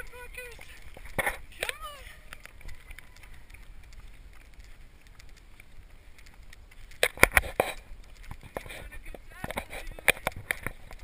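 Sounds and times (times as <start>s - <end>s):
camera rubbing and ticks: 0.0s - 11.0s.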